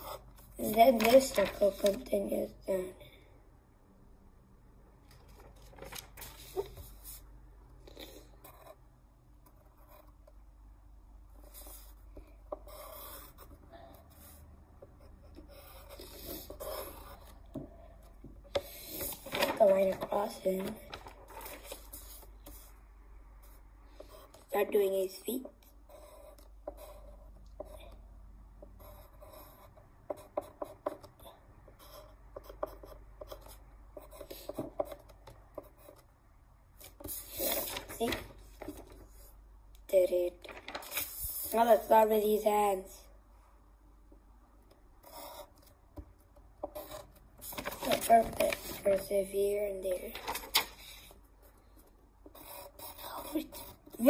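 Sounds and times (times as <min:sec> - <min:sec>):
pen scratching on paper: 0:00.0 - 0:02.0, 0:07.9 - 0:08.8, 0:09.4 - 0:10.4, 0:11.3 - 0:17.5, 0:25.6 - 0:28.0, 0:28.8 - 0:36.0, 0:45.0 - 0:45.8, 0:46.6 - 0:47.7, 0:52.3 - 0:54.0.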